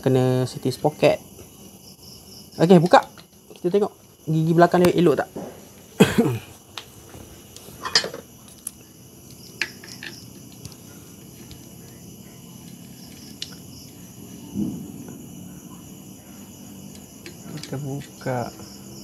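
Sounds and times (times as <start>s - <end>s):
cricket chirping: 0.0s - 19.0s.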